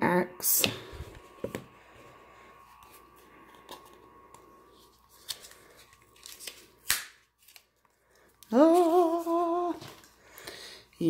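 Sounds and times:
card and paper rustling: 4.7 - 10.2.

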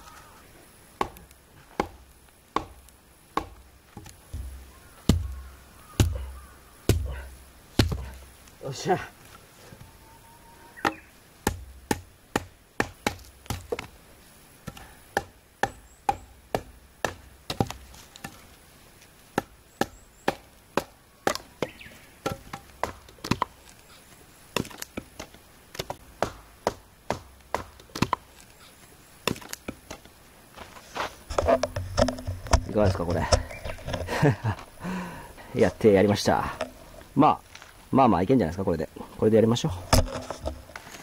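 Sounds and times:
wood chopping blows: 1.0 - 8.2, 24.6 - 28.3.

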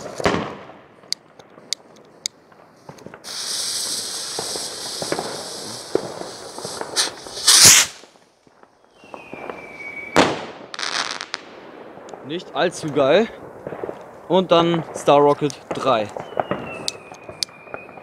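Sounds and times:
firework crackles: 0.0 - 18.0
rocket motor hissing: 3.2 - 8.0.

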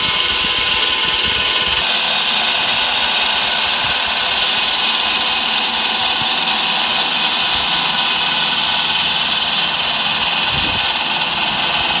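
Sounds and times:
wall saw grinding concrete: 0.0 - 12.0.

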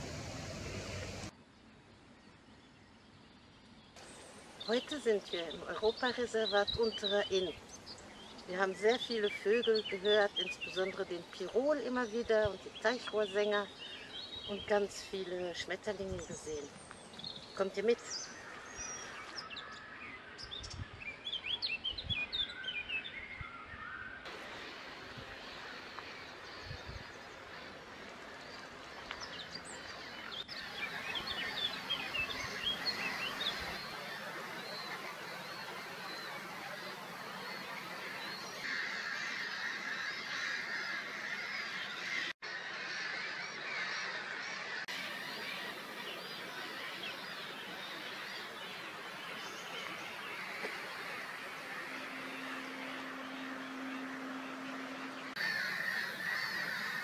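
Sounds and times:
low steady hum: 0.0 - 1.3, 47.4 - 57.0
outdoor hiss: 0.0 - 1.3, 4.0 - 6.1, 24.3 - 39.6, 44.9 - 57.0
bird calls: 4.0 - 57.0.

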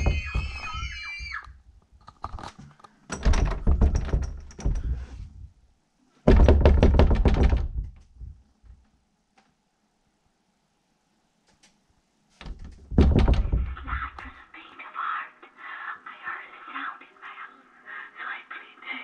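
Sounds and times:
heavy knocking on a door: 0.0 - 0.6, 3.2 - 5.1, 6.3 - 8.4, 12.5 - 14.2.

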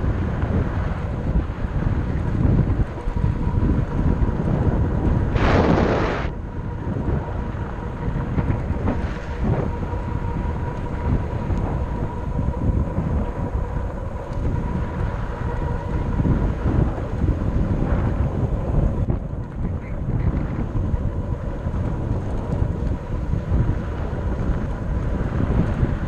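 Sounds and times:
faint steady whine: 0.0 - 26.0
wind buffeting microphone: 0.0 - 26.0
loud hissing rush: 5.3 - 6.3.

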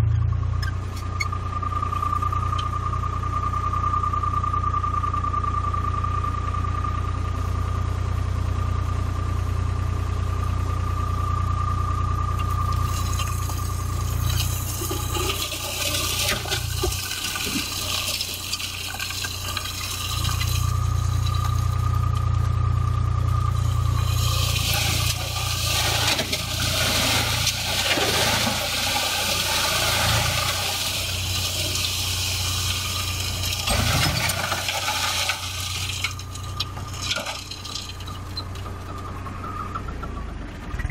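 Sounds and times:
tractor engine running: 0.0 - 40.9
hydraulic whine: 12.0 - 40.9.

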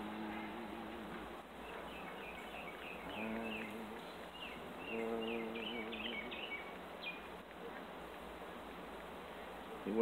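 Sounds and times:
man humming: 0.0 - 1.4, 3.1 - 4.1, 4.8 - 6.5.

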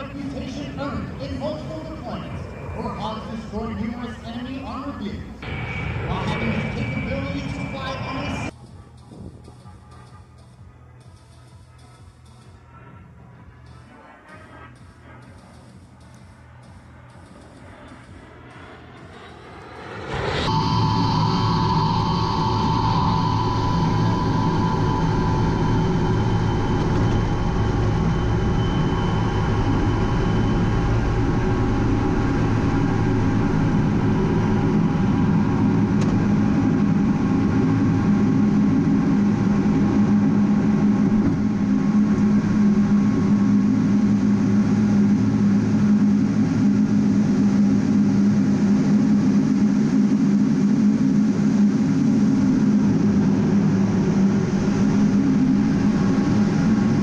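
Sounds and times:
jet engines droning: 0.0 - 57.0.

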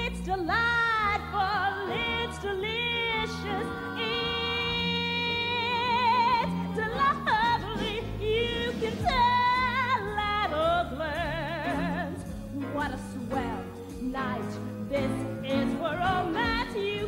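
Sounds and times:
orchestral accompaniment: 0.2 - 17.0.

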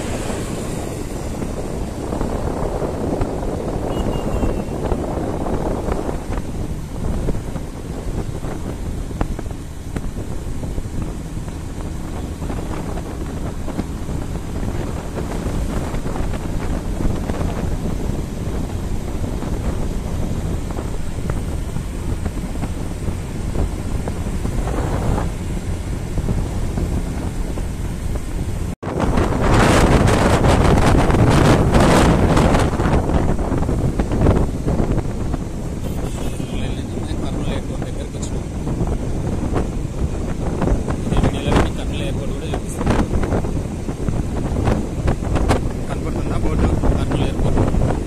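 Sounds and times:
motorcycle engine rumble: 0.0 - 48.0
wind buffeting microphone: 0.0 - 48.0.

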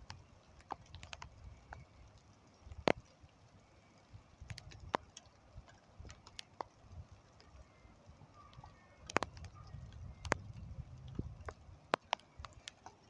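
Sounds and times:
wind rumble on microphone: 4.1 - 12.7
sharp clicks and taps: 11.9 - 13.0.

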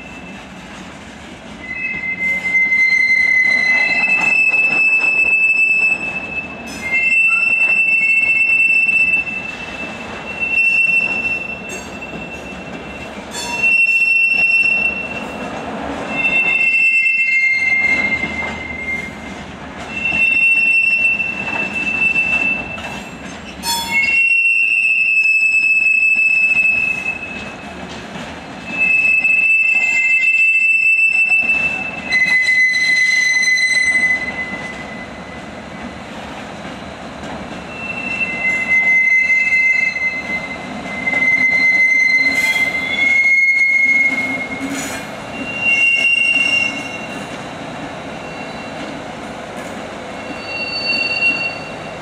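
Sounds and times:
train rumble: 0.0 - 52.0
train wheels squealing on rails: 0.0 - 52.0.

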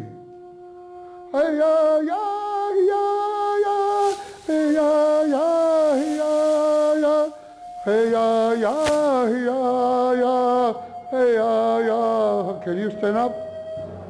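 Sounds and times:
man singing into microphone: 1.3 - 13.4
held flute note: 3.6 - 14.0.

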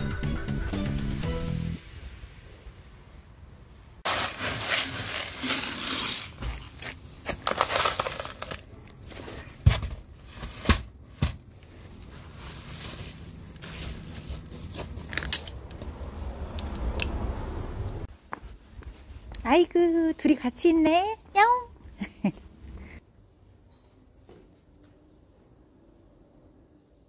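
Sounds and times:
kibble poured into plastic tray: 4.1 - 6.4.

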